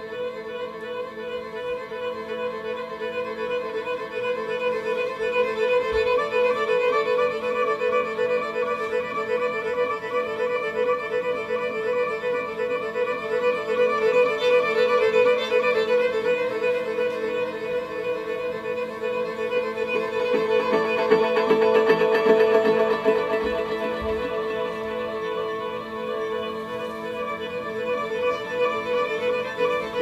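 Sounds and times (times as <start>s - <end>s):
violin tremolo note: 14.1s - 30.0s.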